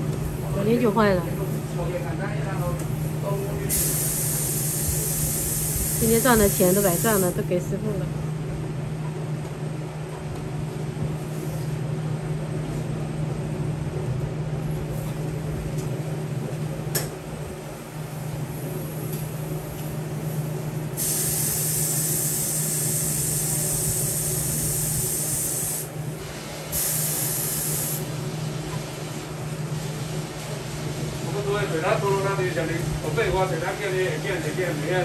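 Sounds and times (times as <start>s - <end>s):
low machinery hum: 0.0s - 35.0s
loud spraying hiss: 2.9s - 7.4s, 21.0s - 25.9s, 26.6s - 28.1s.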